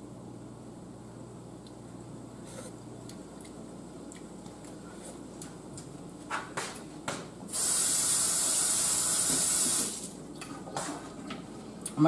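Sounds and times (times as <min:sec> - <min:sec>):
water running into sink: 0:07.6 - 0:10.1.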